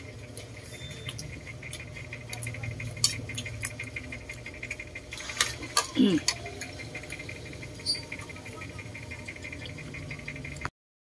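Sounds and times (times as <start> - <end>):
low steady hum: 0.0 - 10.7.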